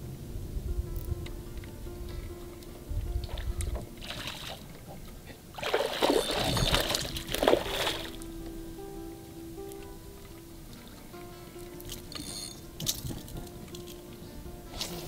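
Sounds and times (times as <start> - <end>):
background music with held notes: 0.0 - 15.0
fish splashing in water: 4.0 - 4.7, 5.6 - 8.3.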